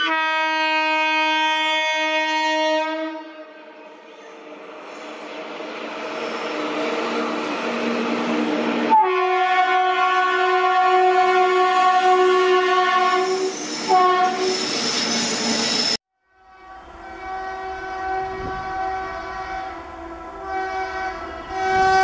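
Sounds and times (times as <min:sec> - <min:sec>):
train horn blast: 0:00.0 - 0:03.9, 0:08.9 - 0:14.6, 0:16.2 - 0:22.0.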